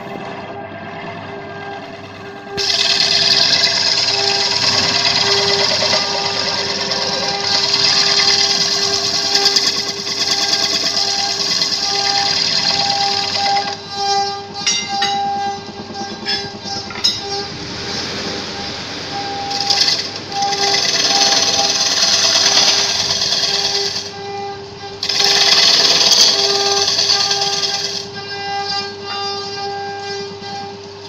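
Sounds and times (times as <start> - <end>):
lathe motor hum: 0.0 - 28.9
gouge cutting spinning wood: 2.5 - 14.6, 15.4 - 24.2, 24.9 - 28.6.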